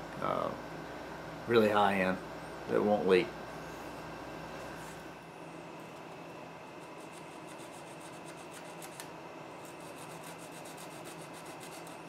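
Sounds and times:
electrical hum: 0.0 - 12.0
hands scratching on circuit board: 6.8 - 12.0.

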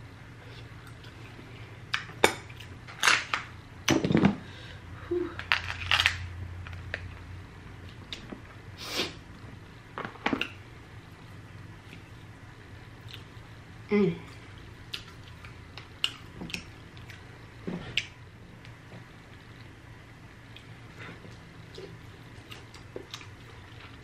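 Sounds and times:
crab shell cracking: 5.4 - 6.2.

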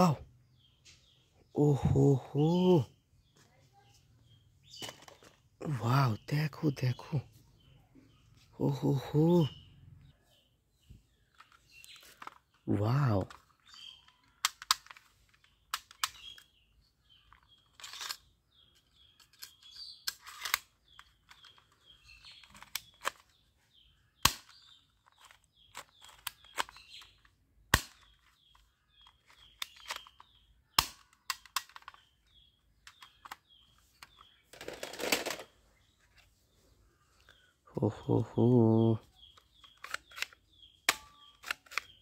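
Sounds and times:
faint birds chirping: 0.0 - 42.0
plastic clatter: 4.7 - 5.5, 11.3 - 12.6, 13.2 - 16.5, 19.2 - 23.4, 24.2 - 35.6
toy pistol clicking: 30.8 - 32.0.

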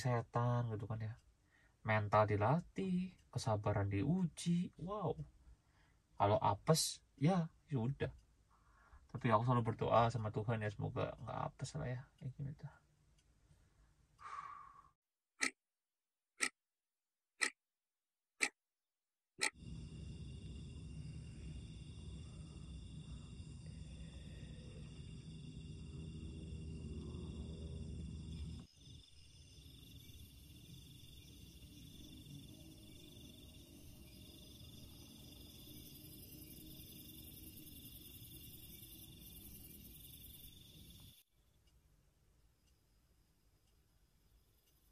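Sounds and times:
clock ticking: 0.0 - 5.4, 17.4 - 17.6, 18.4 - 18.6, 19.4 - 19.6
crickets trilling: 19.5 - 41.6, 42.7 - 44.9.

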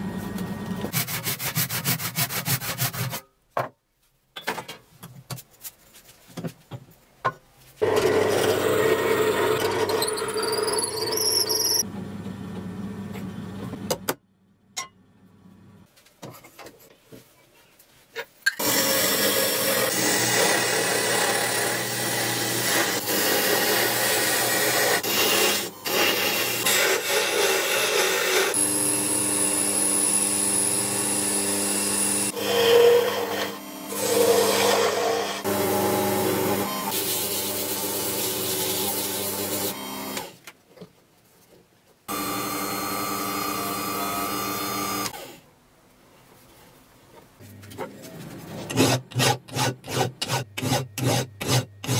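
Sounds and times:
wood lathe motor hum: 18.6 - 40.3, 42.1 - 45.3
gouge scraping wood: 48.6 - 51.9.

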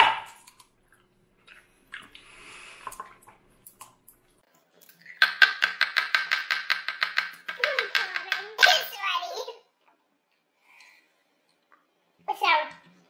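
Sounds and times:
wet mouth clicks and squishes: 0.3 - 5.2.

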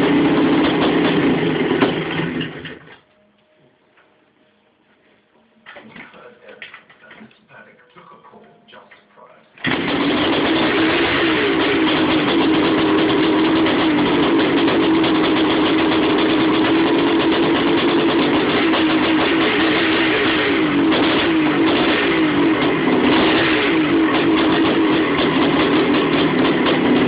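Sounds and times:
two-stroke engine idling: 0.0 - 2.9, 9.6 - 27.0.

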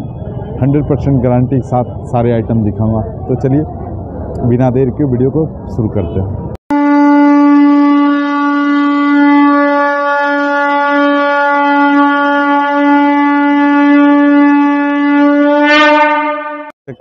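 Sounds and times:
long steady horn-like note: 6.7 - 16.7.

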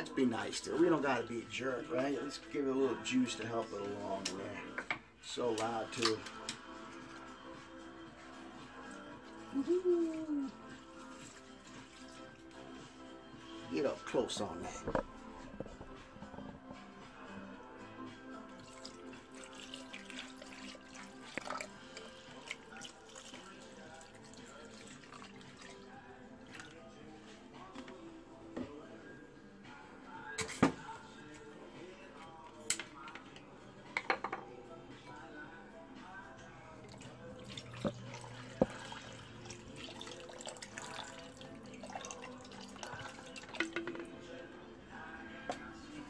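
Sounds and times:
juice pouring into blender jar: 18.3 - 27.0, 36.8 - 44.1.

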